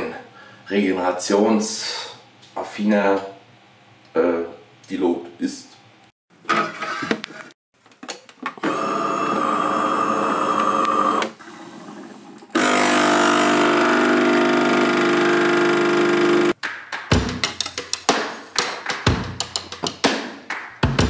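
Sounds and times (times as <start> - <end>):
small electric motor whirring: 12.6 - 16.6.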